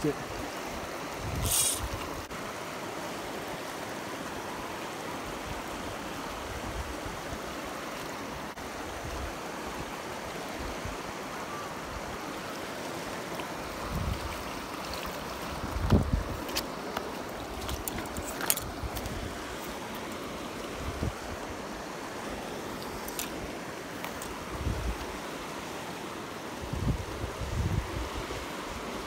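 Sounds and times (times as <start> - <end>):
stream water rushing: 0.0 - 29.0
hissing rustle: 1.2 - 2.3.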